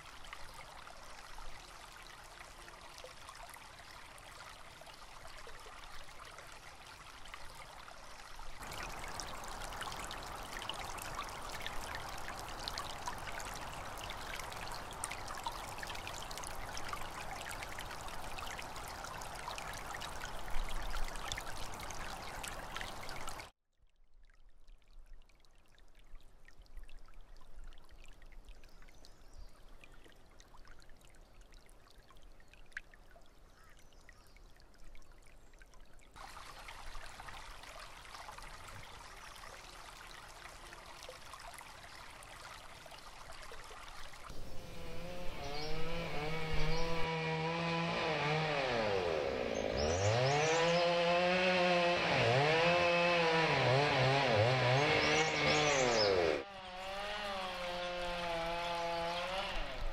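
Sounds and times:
stream trickling: 0.0s - 59.9s
small engine revving: 44.3s - 59.9s.

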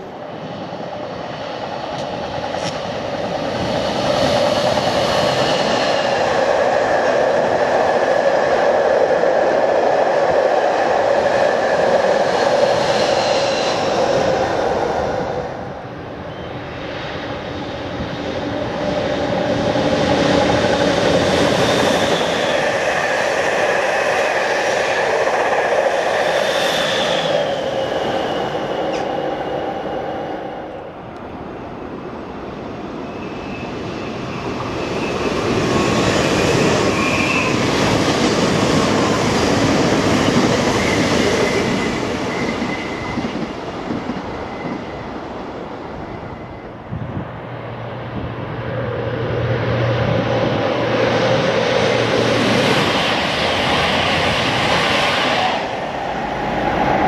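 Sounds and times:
electric train passing: 0.0s - 57.0s
train wheel squeals: 3.4s - 7.2s, 11.2s - 15.4s, 16.2s - 17.3s, 18.4s - 30.8s, 33.0s - 47.0s.

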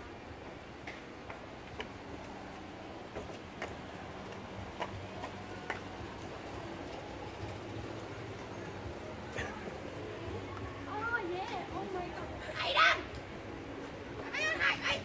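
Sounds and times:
footsteps on pavement: 0.0s - 7.0s
low hum of street noise: 0.0s - 15.0s.

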